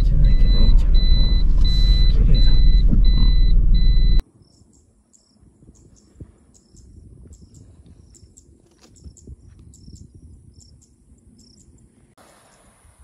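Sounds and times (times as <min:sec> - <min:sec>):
car road noise: 0:00.0 - 0:04.2
long electronic beep: 0:00.0 - 0:04.2
insects chirping: 0:04.3 - 0:12.7.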